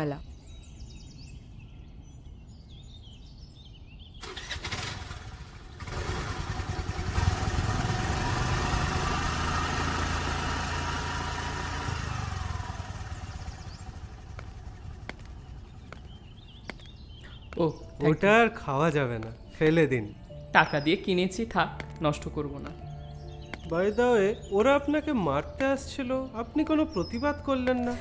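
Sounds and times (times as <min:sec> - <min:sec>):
motor scooter engine: 0:04.2 - 0:17.5.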